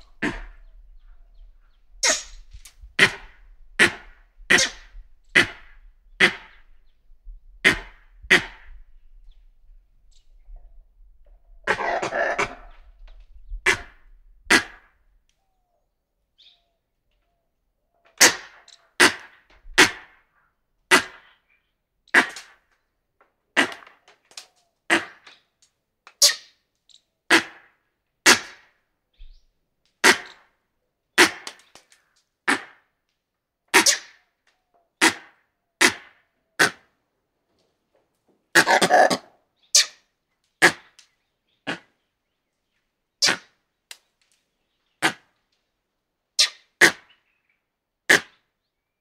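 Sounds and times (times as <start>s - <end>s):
monkeys barking: 38.6s - 39.3s.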